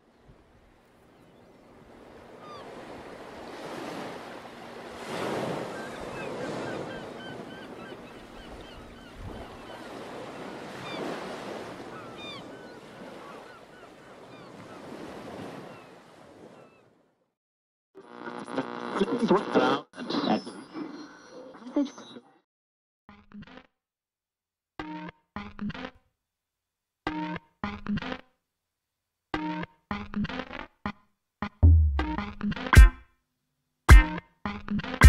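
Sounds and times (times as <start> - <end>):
waves breaking: 0.0 - 16.9
birds chirping: 0.9 - 3.2, 5.4 - 15.0.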